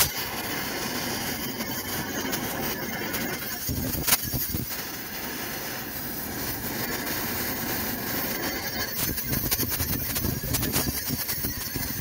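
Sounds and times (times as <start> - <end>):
torch pops: 0.0 - 1.4, 2.2 - 12.0
cutting torch hissing: 0.0 - 12.0.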